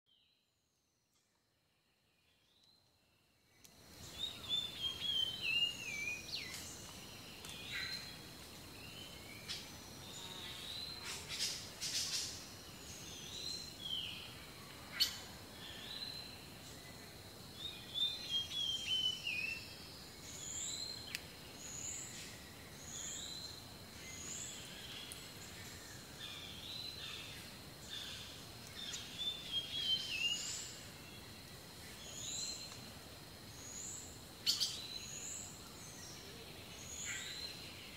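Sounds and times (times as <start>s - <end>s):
songbirds chirping and warbling: 1.8s - 37.9s.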